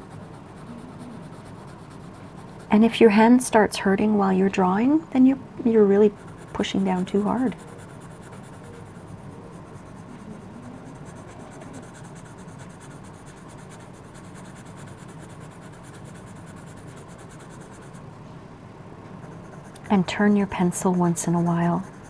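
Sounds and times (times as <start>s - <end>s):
pencil shading on paper: 0.0s - 2.9s, 6.1s - 18.0s, 19.2s - 22.0s.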